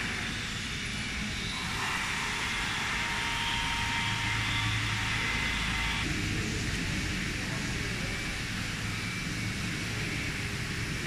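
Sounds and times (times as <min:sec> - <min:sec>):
wood router machine humming: 0:00.0 - 0:06.1.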